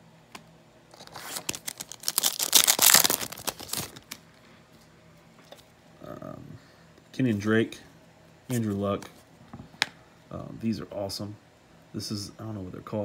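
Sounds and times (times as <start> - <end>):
trading cards rustling and scraping: 0.9 - 4.2.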